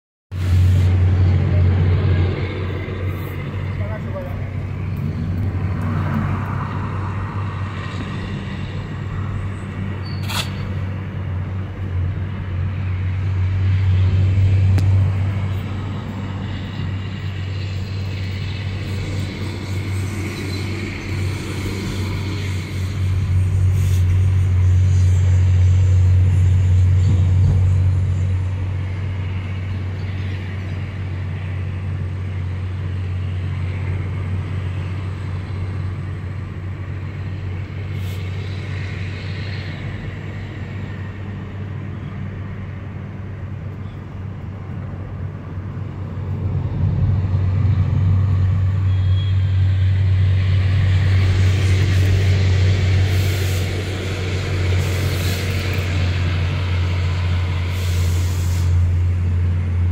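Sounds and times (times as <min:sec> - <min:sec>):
sharp click: 0:10.2 - 0:10.8.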